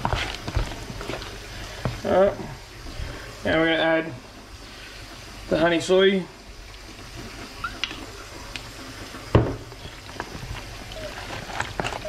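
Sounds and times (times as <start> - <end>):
hands mixing raw meat: 9.7 - 12.0.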